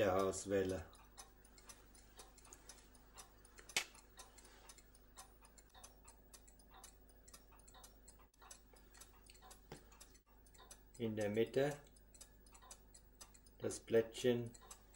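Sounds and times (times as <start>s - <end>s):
pocket watch ticking: 0.0s - 14.9s
sharp click: 3.6s - 4.0s.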